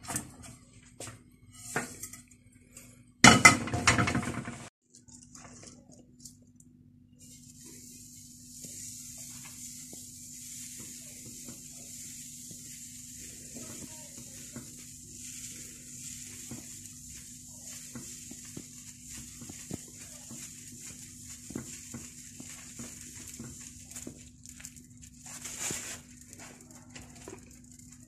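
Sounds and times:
batter sizzling in a frying pan: 7.2 - 28.0.

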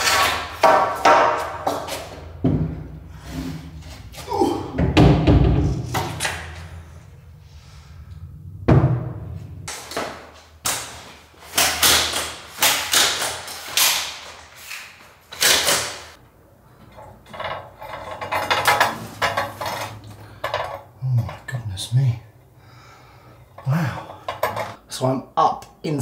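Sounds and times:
ladder knocks and clatters: 0.0 - 3.0, 3.8 - 6.8, 16.8 - 20.8
heavy knock: 8.6 - 9.4.

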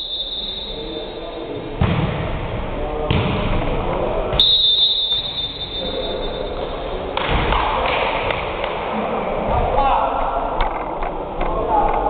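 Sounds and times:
high steady tone: 0.0 - 1.7.

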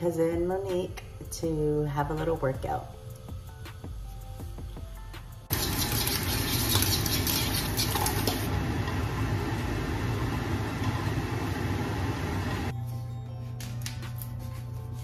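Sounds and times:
eggs sizzling in a frying pan: 5.5 - 12.7
steady low hum: 8.5 - 12.8.

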